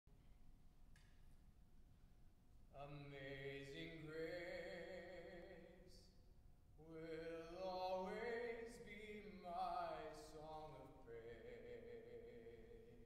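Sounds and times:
man singing gospel melody: 0:02.8 - 0:06.2, 0:06.8 - 0:13.0.

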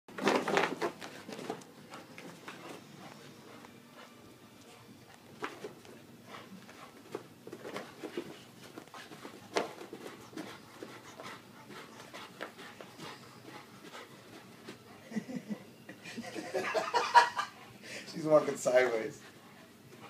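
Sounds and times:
dog paws thumping on carpet: 0:00.1 - 0:04.1, 0:05.0 - 0:14.8.

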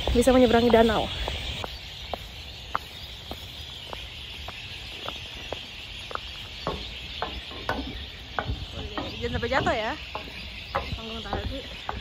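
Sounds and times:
footsteps on stone paving: 0:00.0 - 0:12.0.

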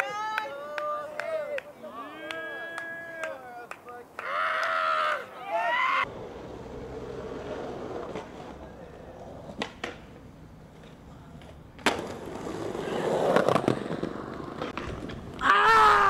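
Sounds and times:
skateboard wheels rolling on pavement: 0:05.7 - 0:16.0
skateboard clicks: 0:07.1 - 0:15.6
skateboard landing smack: 0:09.5 - 0:10.1, 0:11.8 - 0:12.5.

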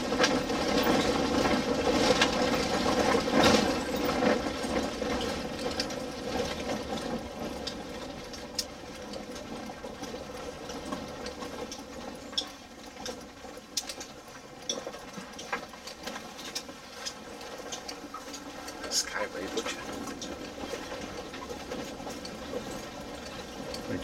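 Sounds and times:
road noise inside car: 0:00.0 - 0:24.0
vehicle body rattling: 0:00.0 - 0:24.0
car engine running: 0:16.0 - 0:24.0.

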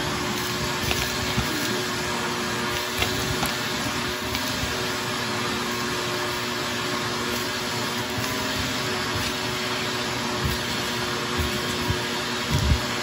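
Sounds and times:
wet dry vacuum running: 0:00.0 - 0:13.0.

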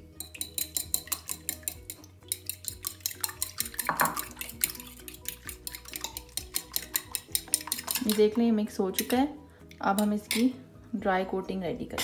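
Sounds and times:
fork clinking against bowl: 0:00.2 - 0:08.3.

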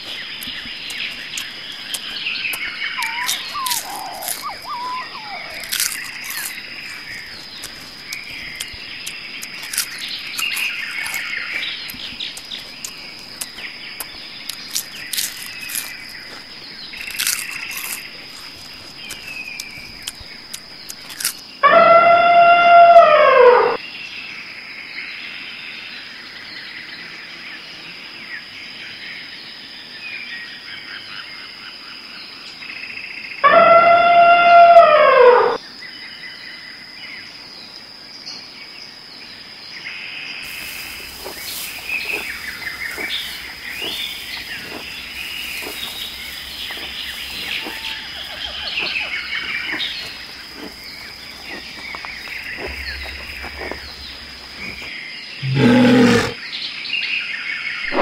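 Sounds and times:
bird chirps and whistles: 0:03.0 - 0:05.7
loud drawn-out squawk: 0:03.0 - 0:06.0
short loud low animal call: 0:55.4 - 0:56.4.

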